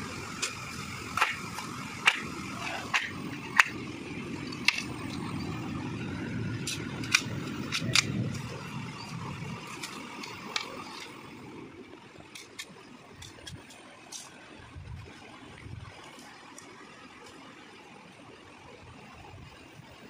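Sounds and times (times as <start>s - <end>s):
machete tapping bamboo pole: 0.4s - 3.8s.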